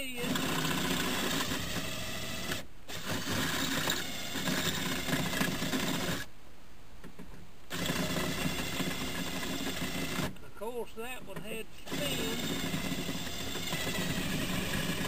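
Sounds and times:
power drill drilling metal: 0.0s - 6.3s, 7.7s - 10.4s, 11.8s - 15.0s.

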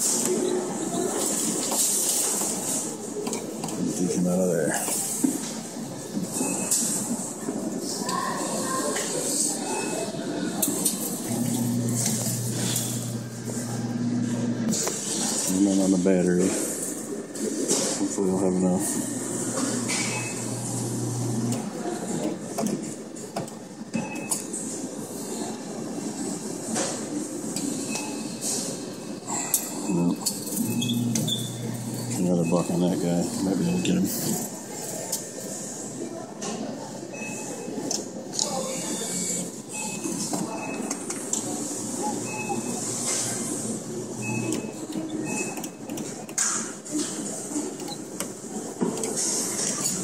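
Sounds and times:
mechanical hiss and hum: 9.1s - 36.1s, 37.5s - 50.0s
short electronic beeps: 19.9s - 20.6s, 29.8s - 31.6s
claw machine whirring: 30.2s - 32.5s.

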